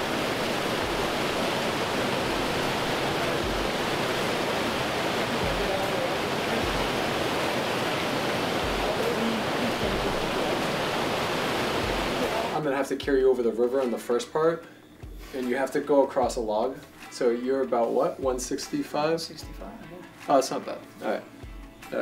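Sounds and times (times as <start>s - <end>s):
stream rushing over rocks: 0.0s - 12.6s.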